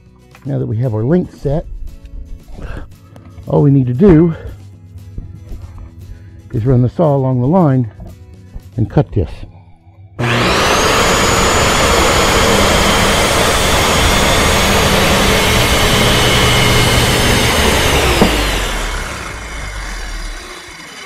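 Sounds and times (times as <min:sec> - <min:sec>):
circular saw cutting wood: 0:10.2 - 0:21.0
saw motor spinning down: 0:10.2 - 0:21.0.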